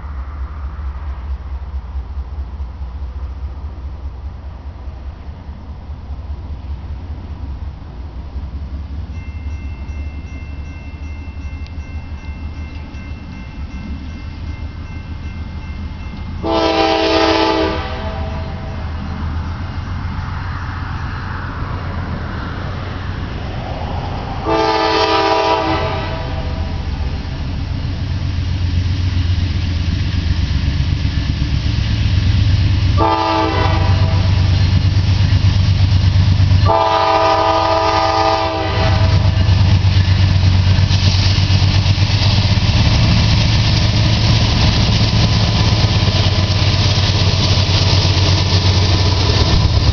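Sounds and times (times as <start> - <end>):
diesel locomotive rumble: 0.0 - 49.9
train air horn: 16.4 - 18.9, 24.4 - 26.9, 32.9 - 34.6, 36.6 - 39.6.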